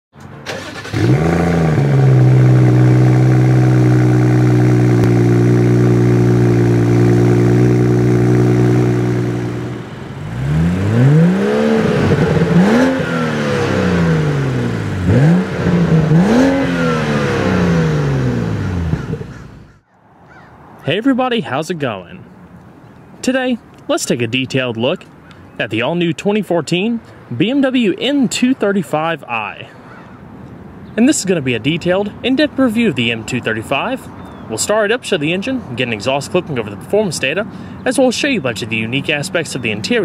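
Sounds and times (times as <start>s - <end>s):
car engine starting and revving: 0.3s - 19.8s.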